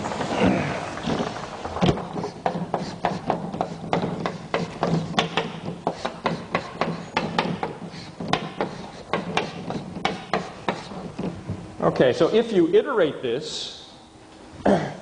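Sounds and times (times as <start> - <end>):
chalk tapping and scraping on chalkboard: 2.1 - 11.4.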